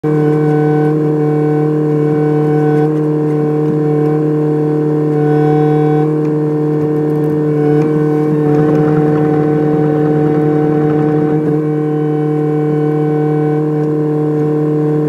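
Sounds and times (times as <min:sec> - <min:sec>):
excavator engine droning: 0:00.0 - 0:15.0.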